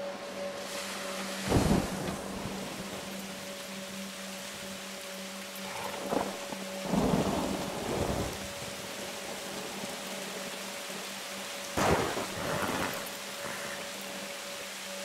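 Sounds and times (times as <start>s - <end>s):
rain and wind hiss: 0.0s - 15.0s
thunder rumble: 1.4s - 3.1s, 11.8s - 13.8s.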